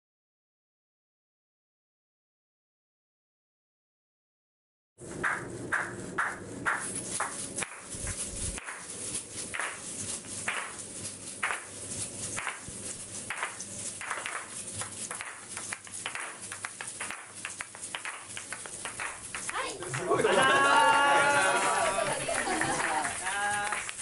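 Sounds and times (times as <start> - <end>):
shaker shells clacking: 5.2 - 20.6, 21.2 - 24.0.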